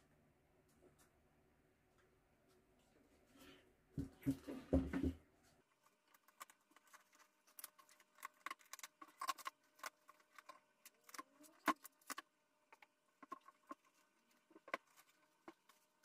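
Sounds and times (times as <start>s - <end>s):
plastic cling wrap crinkling: 5.7s - 16.0s
scissors cutting plastic: 6.0s - 16.0s.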